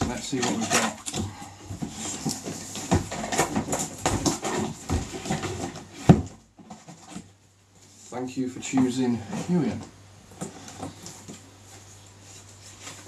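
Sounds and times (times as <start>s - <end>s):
cardboard box scraping and knocking: 0.0s - 7.3s.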